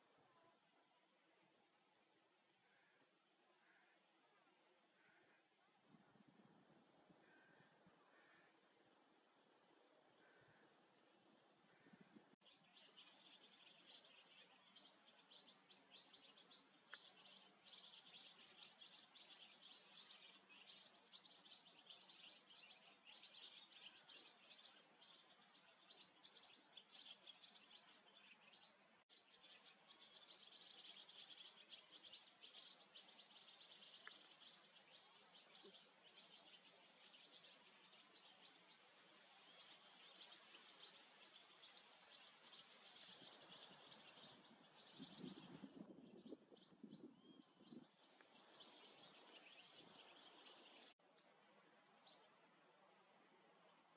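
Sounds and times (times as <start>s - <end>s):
swallows twittering: 7.2s - 8.7s, 11.7s - 51.4s.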